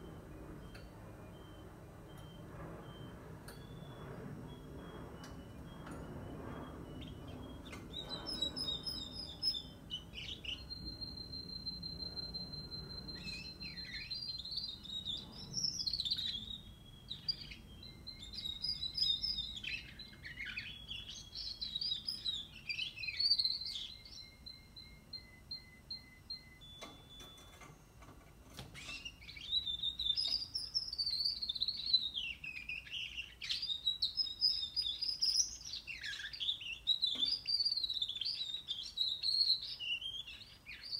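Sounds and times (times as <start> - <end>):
canary singing trills and whistles: 0.0 - 27.7, 28.5 - 40.9.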